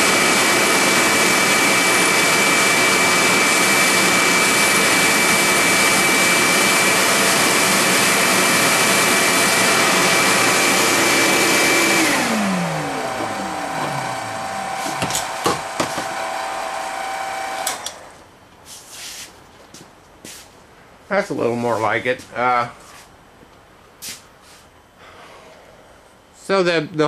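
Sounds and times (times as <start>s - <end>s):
machine whine: 0.0s - 18.2s
shop vacuum whining: 0.0s - 18.3s
knocks: 15.0s - 16.1s.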